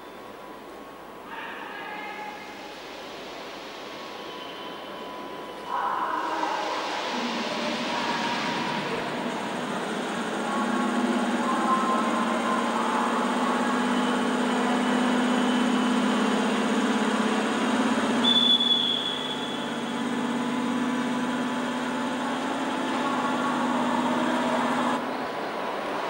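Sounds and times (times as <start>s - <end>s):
train hum and rumble: 0.0s - 26.0s
brief high tone: 18.2s - 20.0s.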